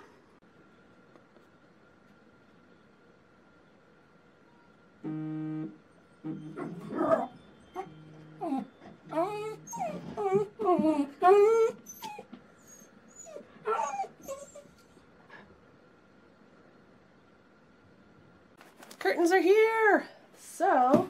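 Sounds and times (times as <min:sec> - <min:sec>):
short low buzzes: 0:05.0 - 0:07.0
steady buzzing tone: 0:05.0 - 0:08.4
dog whining and yipping: 0:06.4 - 0:15.0.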